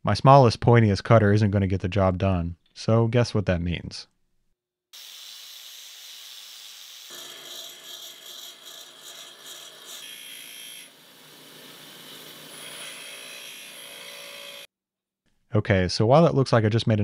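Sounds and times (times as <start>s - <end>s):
angle grinder grinding tool bit: 5.0s - 14.7s
bench grinder grinding tool bit: 5.5s - 14.7s.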